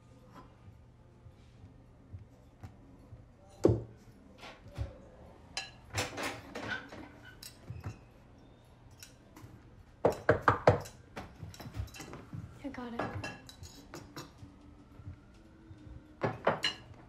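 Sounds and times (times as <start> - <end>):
cutlery clinking on a plate: 5.6 - 8.1, 8.9 - 12.2, 13.0 - 14.4, 16.2 - 17.0.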